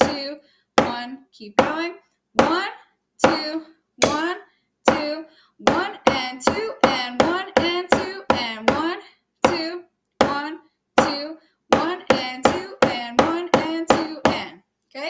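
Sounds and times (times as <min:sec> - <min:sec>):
person counting: 0:00.0 - 0:15.0.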